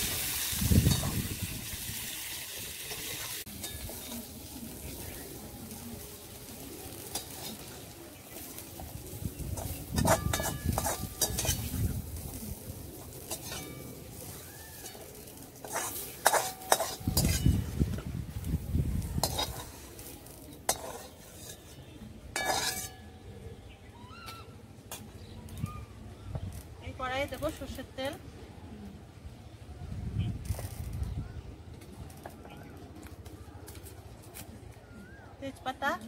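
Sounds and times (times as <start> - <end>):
faint frying sizzle: 0.0 - 22.9
metal spoon scraping and clinking: 0.8 - 1.4, 2.9 - 4.4, 7.0 - 8.5, 9.5 - 12.3, 13.0 - 17.8, 19.2 - 23.2.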